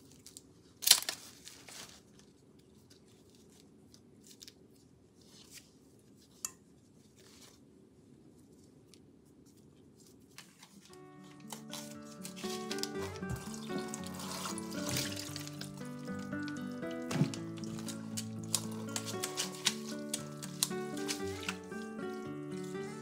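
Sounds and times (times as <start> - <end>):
corn handling rustles: 0.0 - 23.0
music: 10.9 - 23.0.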